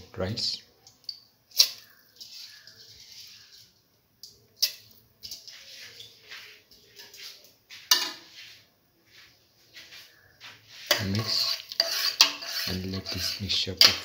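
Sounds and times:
metal kitchenware clinking on pot: 10.9 - 14.0.

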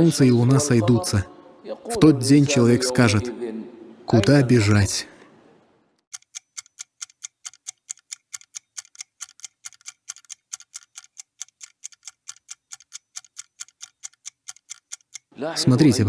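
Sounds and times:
fast clock ticking: 6.1 - 15.4.

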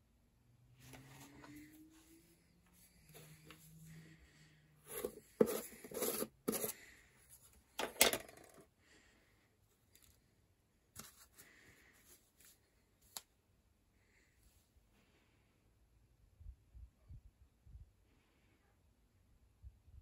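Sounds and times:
metal tin lid scraping and clicking: 4.9 - 6.8, 7.8 - 8.6.

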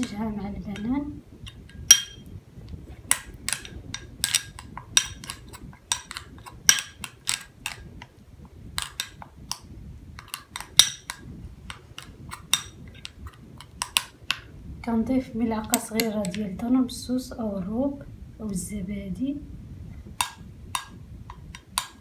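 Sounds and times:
spoon clinking in ceramic bowl: 1.9 - 2.3.

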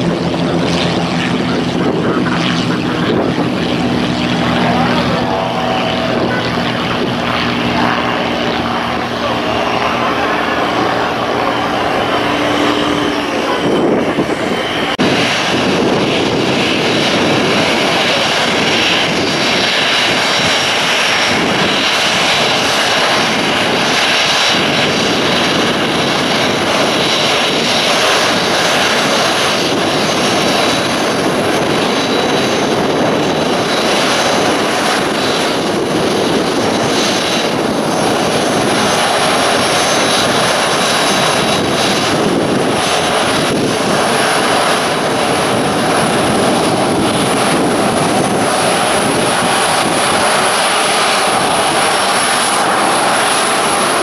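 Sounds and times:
jet engines roaring: 0.0 - 54.0.

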